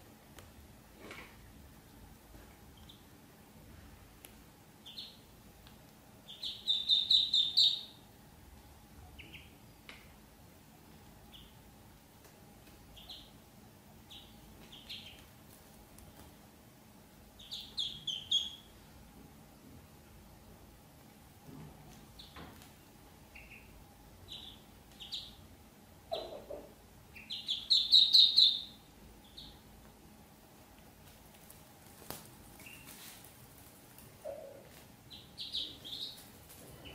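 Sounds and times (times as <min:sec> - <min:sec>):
ducklings peeping: 0:02.7 - 0:03.1, 0:04.8 - 0:05.3, 0:06.2 - 0:08.1, 0:08.9 - 0:10.0, 0:11.2 - 0:11.6, 0:12.8 - 0:13.4, 0:14.0 - 0:15.4, 0:17.4 - 0:18.8, 0:22.0 - 0:22.4, 0:23.2 - 0:29.7, 0:32.5 - 0:33.1, 0:34.2 - 0:36.9.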